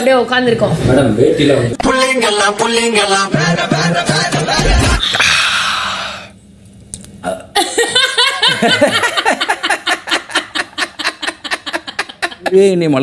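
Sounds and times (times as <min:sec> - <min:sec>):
pulsing laughter: 0:03.3 - 0:05.2.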